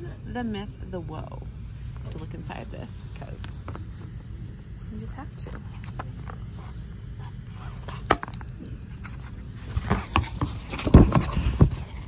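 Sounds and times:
book handling knocks and rustling: 7.8 - 12.0.

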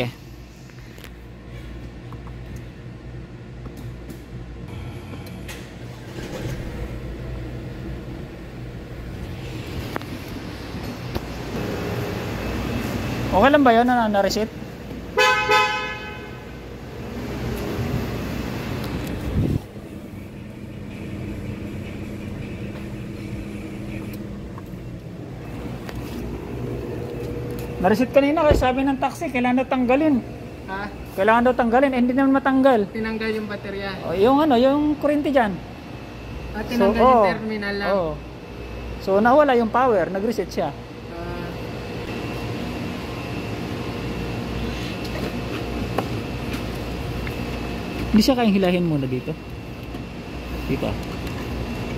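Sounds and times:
low mechanical hum: 0.0 - 51.9
car engine idling: 4.7 - 33.9.

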